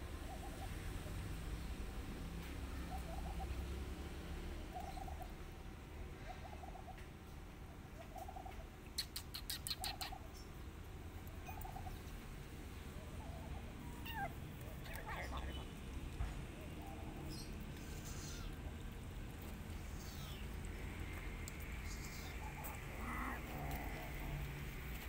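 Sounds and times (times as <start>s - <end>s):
bird warbling call: 8.1s - 10.5s
sharp high clicks or chirps: 8.9s - 10.2s.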